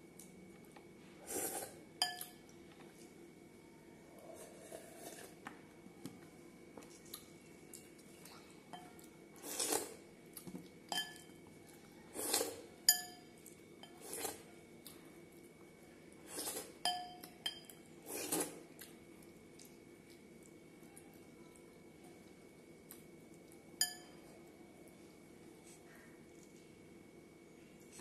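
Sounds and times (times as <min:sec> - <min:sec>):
hand clinking glass bowl: 0:23.8 - 0:24.2.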